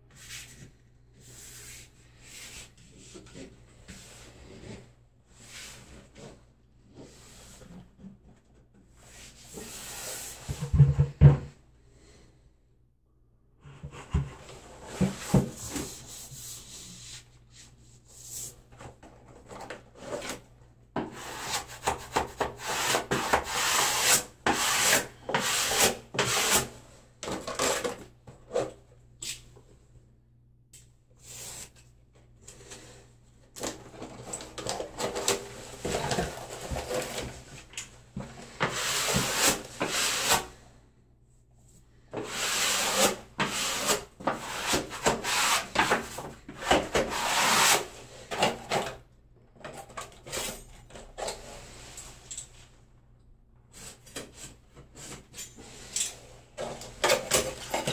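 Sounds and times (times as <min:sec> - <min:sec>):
wallpaper rubbing and brushing: 0:14.6 - 0:18.7, 0:21.2 - 0:26.7, 0:42.2 - 0:48.0.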